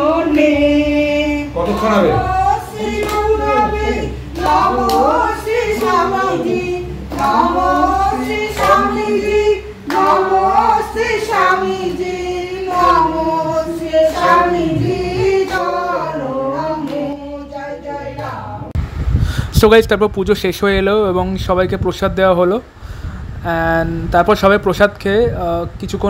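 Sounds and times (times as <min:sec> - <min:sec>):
women singing together: 0:00.0 - 0:18.8
hand clapping: 0:02.8 - 0:10.4.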